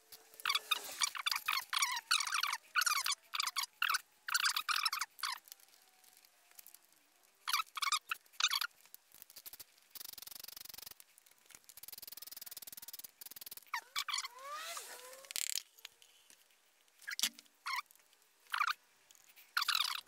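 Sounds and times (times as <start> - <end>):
ratchet wrench clicking: 9.4 - 11.0.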